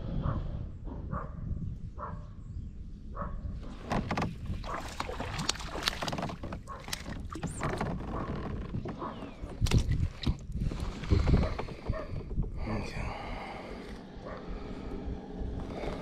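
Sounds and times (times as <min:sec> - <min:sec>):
fish thrashing and splashing: 0:03.8 - 0:11.9.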